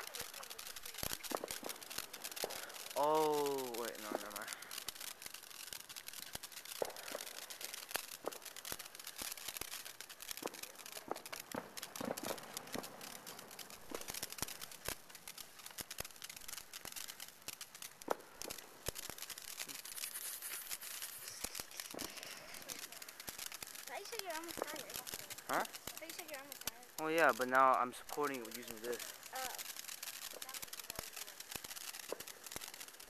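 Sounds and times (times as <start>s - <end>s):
firework fountain hissing and crackling: 0.0s - 33.0s
sharp firework pops: 0.0s - 33.0s.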